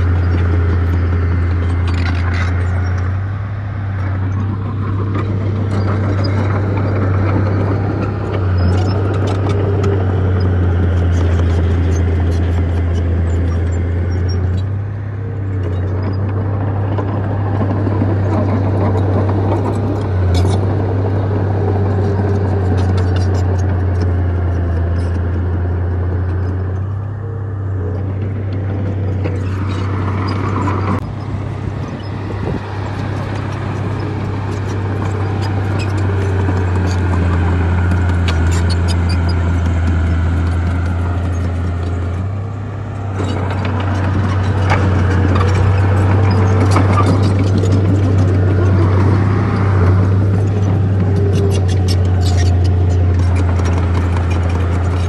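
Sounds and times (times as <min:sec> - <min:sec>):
heavy diesel machinery engine drone: 0:00.0 - 0:55.0.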